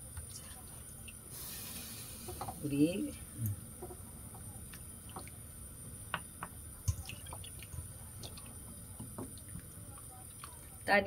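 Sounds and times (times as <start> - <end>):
water splashing in a pot: 6.8 - 11.0.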